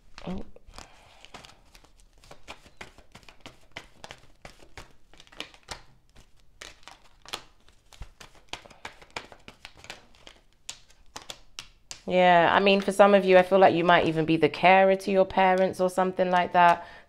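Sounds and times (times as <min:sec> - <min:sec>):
cards being shuffled: 0:00.0 - 0:12.9.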